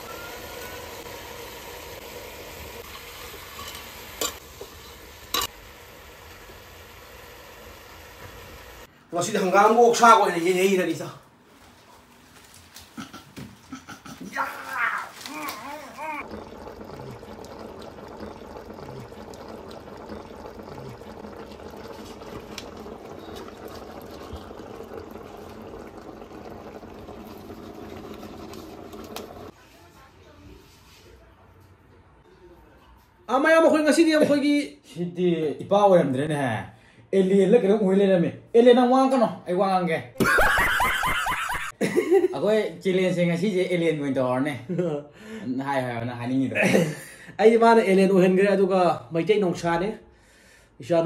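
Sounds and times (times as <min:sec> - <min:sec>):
meat and onions sizzling: 0:00.0 - 0:08.9, 0:14.3 - 0:29.5
curry bubbling in a pot: 0:16.0 - 0:29.6.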